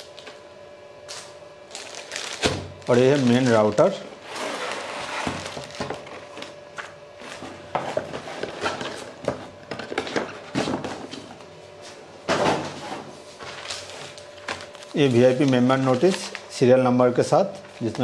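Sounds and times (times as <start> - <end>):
plastic bag crinkling: 1.1 - 4.0, 4.6 - 6.4, 13.4 - 16.6
cardboard packaging handled: 1.1 - 11.3, 13.3 - 16.5.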